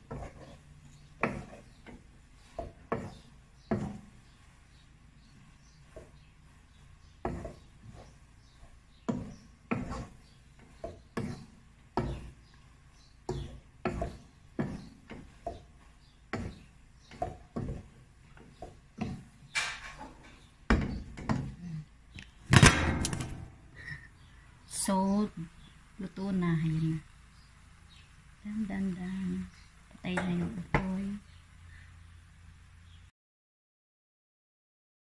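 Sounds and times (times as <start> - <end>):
wooden spoon scraping pot: 0.0 - 21.6.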